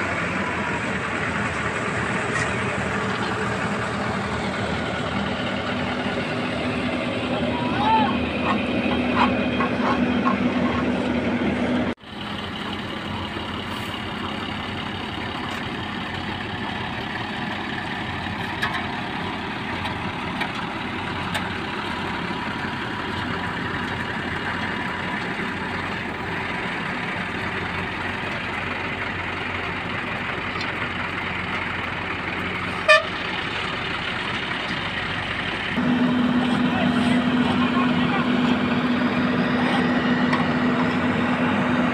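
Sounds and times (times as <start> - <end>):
diesel engines running: 0.0 - 41.9
vehicle horn toot: 32.8 - 33.2.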